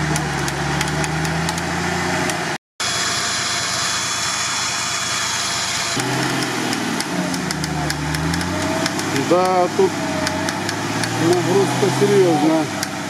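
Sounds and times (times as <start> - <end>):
engine running: 0.0 - 13.0
electric winch whining: 2.8 - 13.0.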